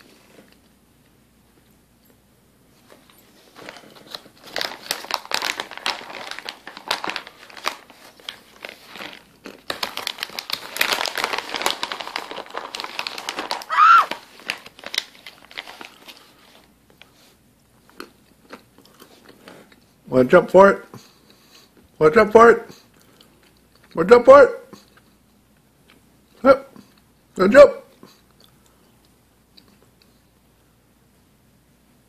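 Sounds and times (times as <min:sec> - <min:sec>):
plastic snack bag crinkling: 0:03.0 - 0:19.6.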